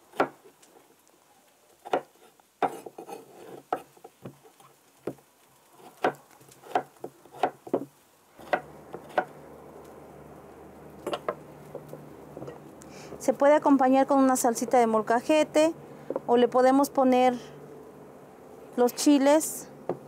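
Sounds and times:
knife chopping on wooden board: 0:00.1 - 0:00.4, 0:01.8 - 0:04.4, 0:05.8 - 0:09.4
low steady hum: 0:08.1 - 0:20.0.

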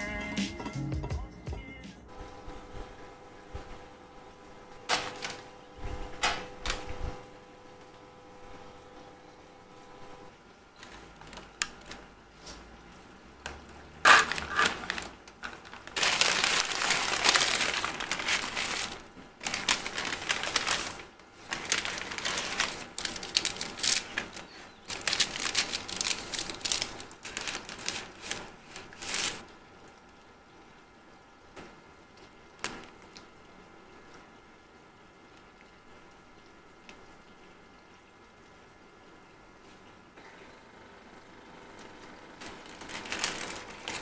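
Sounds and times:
paper bag and wrapper rustling: 0:04.9 - 0:05.5, 0:14.0 - 0:29.5, 0:42.4 - 0:44.0.

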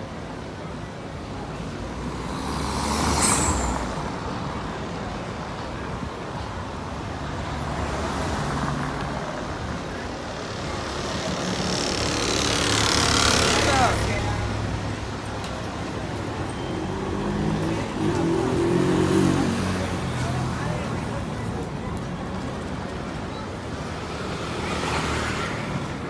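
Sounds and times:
vehicle engines passing: 0:00.0 - 0:26.0
car passing close: 0:01.8 - 0:05.1
sharp hiss: 0:02.4 - 0:04.1.

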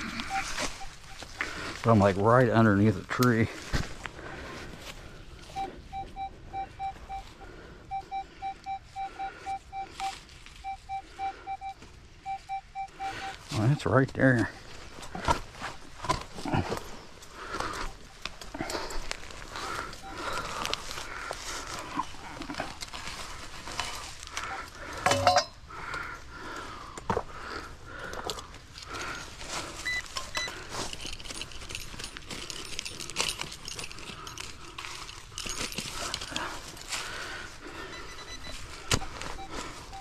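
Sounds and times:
digging through dirt and leaves: 0:00.0 - 0:07.6, 0:13.1 - 0:25.0, 0:28.1 - 0:40.0.

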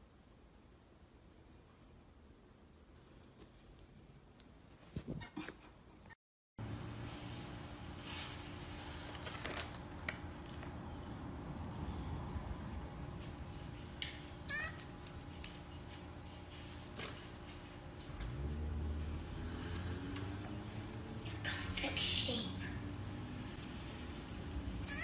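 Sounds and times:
marmoset chirps: 0:02.9 - 0:03.3, 0:04.4 - 0:06.2, 0:14.5 - 0:14.8, 0:23.6 - 0:25.0
marmoset squeaky call: 0:03.0 - 0:03.3, 0:04.4 - 0:06.2, 0:14.5 - 0:14.8, 0:23.6 - 0:25.0.

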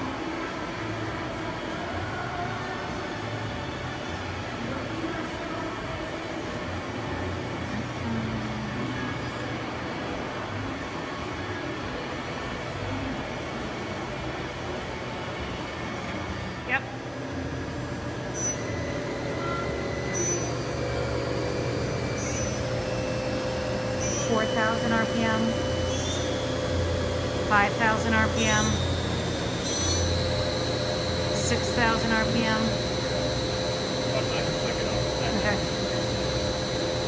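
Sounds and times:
machining center low hum: 0:00.0 - 0:37.0
faint steady tones: 0:17.3 - 0:37.0.

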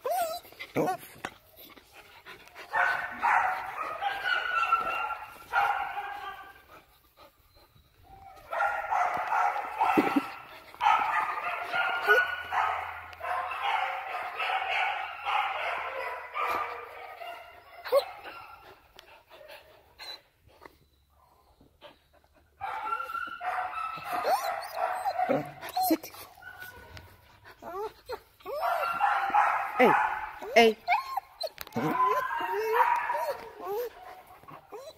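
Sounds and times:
puppies whining: 0:00.0 - 0:13.1, 0:16.2 - 0:34.9
dog yips: 0:02.8 - 0:06.5, 0:22.6 - 0:27.0, 0:27.6 - 0:34.9.

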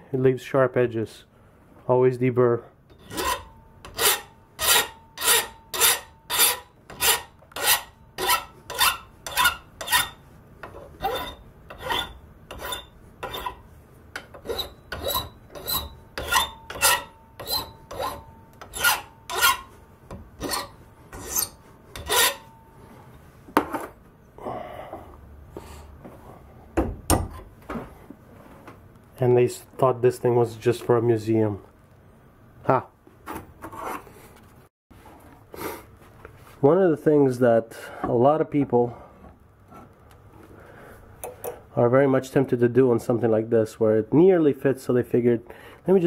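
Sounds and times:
hand file rasping on metal: 0:02.9 - 0:13.6, 0:14.2 - 0:19.7, 0:20.4 - 0:22.5.

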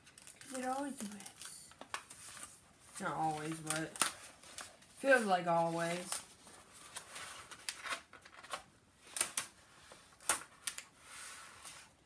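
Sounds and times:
sharp crackles: 0:00.0 - 0:05.3
plastic sheet crinkling and rustling: 0:00.0 - 0:12.0.

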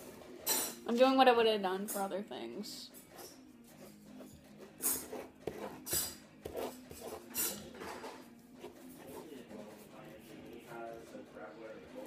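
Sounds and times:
pen scribbling on paper: 0:03.1 - 0:10.9.

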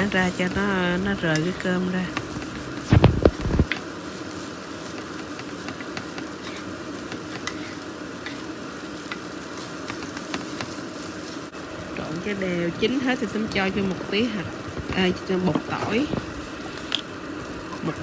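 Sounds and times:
rice sizzling in skillet: 0:00.0 - 0:18.0
wooden spatula scraping pan: 0:04.9 - 0:08.4.

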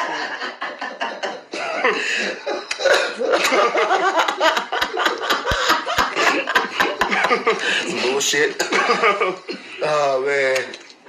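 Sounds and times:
men laughing: 0:00.0 - 0:09.8
coughing: 0:01.1 - 0:03.8, 0:08.5 - 0:09.9.

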